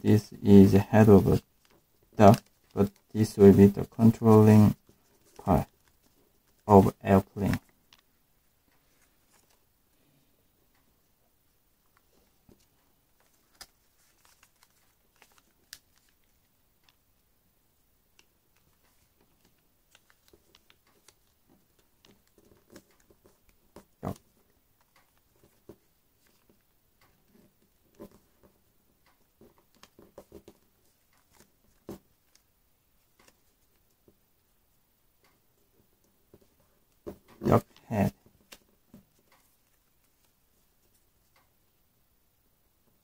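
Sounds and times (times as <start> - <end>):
paper folding and crinkling: 0.7 - 8.0, 8.8 - 9.7, 11.9 - 17.0, 18.2 - 28.6, 29.3 - 34.0, 36.3 - 41.4.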